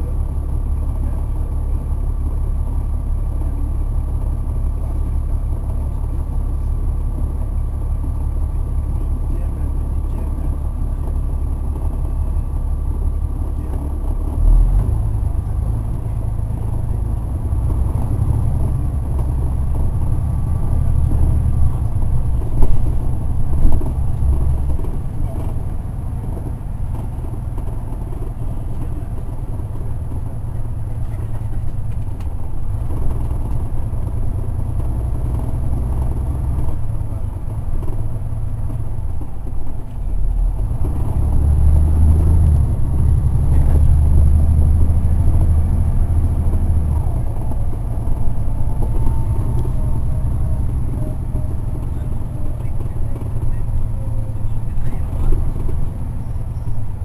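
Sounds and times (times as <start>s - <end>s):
bus diesel engine drone: 0.0s - 57.0s.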